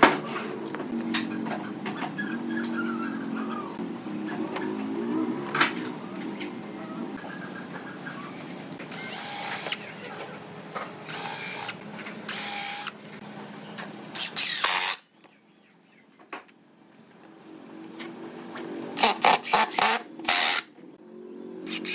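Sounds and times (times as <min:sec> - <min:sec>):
cordless drill boring wood: 0:08.9 - 0:10.0, 0:11.1 - 0:12.9, 0:14.2 - 0:15.0, 0:19.0 - 0:20.6.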